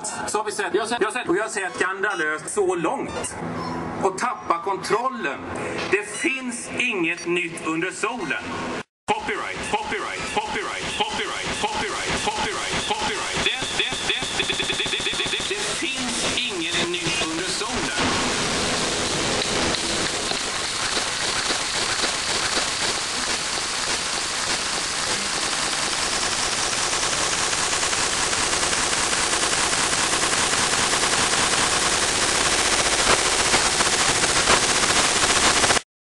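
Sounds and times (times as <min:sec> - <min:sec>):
rapid rattling crackle: 0:17.1 - 0:35.8.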